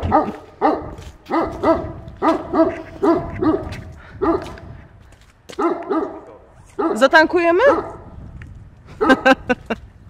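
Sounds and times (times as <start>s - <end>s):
dog barking sharply: 0.0s - 4.6s, 5.6s - 7.0s.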